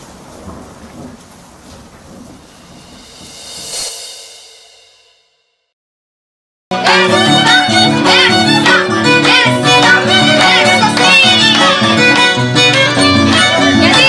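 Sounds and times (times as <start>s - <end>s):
violin fast melody: 6.7s - 14.0s.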